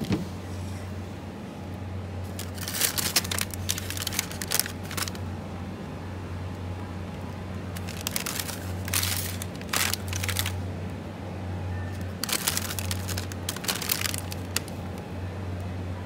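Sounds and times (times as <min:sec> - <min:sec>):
steady low hum: 0:00.0 - 0:16.0
plastic wrappers crinkling: 0:02.2 - 0:05.2, 0:07.2 - 0:10.6, 0:11.9 - 0:15.0.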